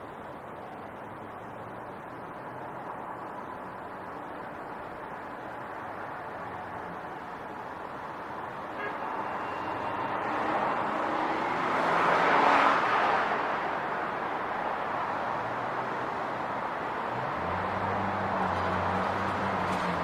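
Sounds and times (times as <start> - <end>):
vehicle passing by: 10.2 - 13.6, 15.2 - 20.0.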